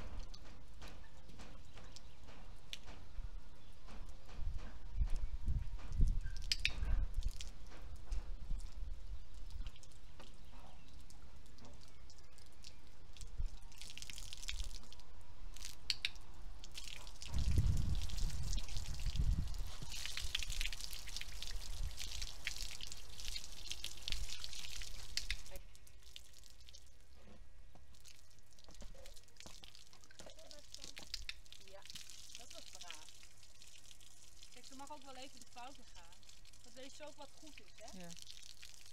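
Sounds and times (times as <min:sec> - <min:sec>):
hose water splattering on paving: 0:00.0 - 0:38.9
low rumble: 0:17.3 - 0:19.9.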